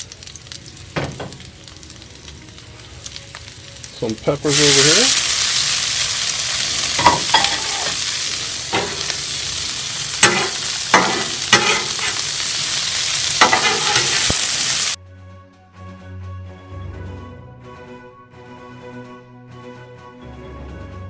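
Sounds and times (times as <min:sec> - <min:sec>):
vegetables sizzling in oil: 0:00.0 - 0:15.0
metal spatulas scraping griddle: 0:07.0 - 0:08.1, 0:10.2 - 0:12.2, 0:13.4 - 0:14.3.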